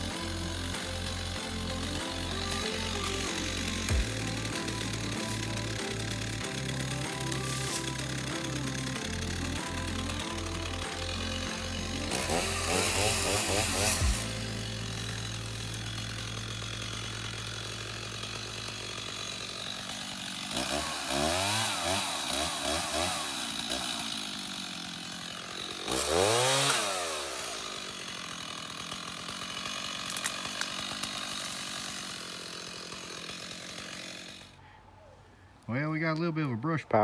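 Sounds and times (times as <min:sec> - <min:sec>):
chainsaw running and revving: 0:00.0 - 0:34.6.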